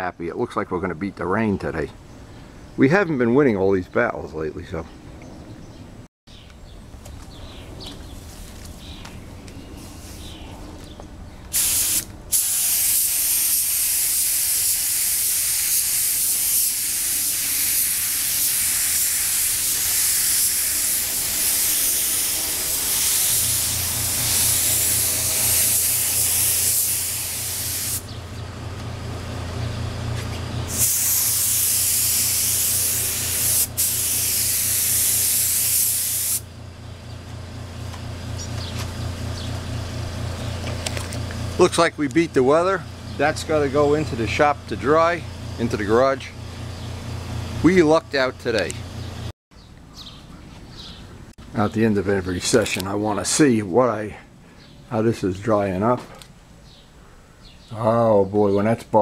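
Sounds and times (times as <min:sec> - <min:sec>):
paint spray gun hissing: 0:11.5 - 0:28.2, 0:30.7 - 0:36.5
low motor hum: 0:20.8 - 0:34.4, 0:36.4 - 0:49.3.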